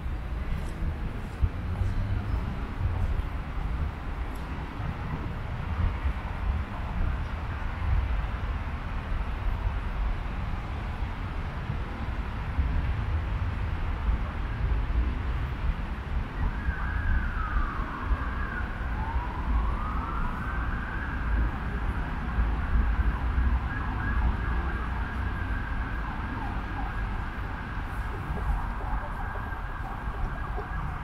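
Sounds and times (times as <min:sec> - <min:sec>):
emergency vehicle siren: 0:15.9 - 0:31.0.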